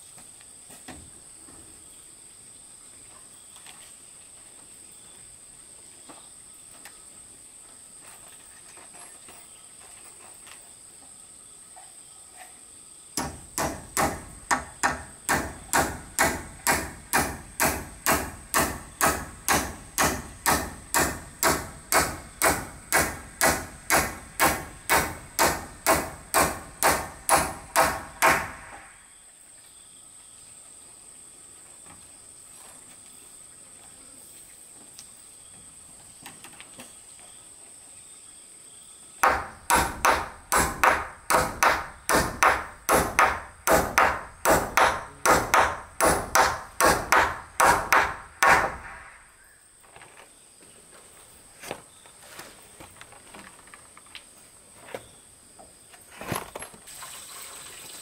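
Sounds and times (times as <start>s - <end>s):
hammer striking nail into wood: 13.2s - 28.9s, 39.2s - 49.1s.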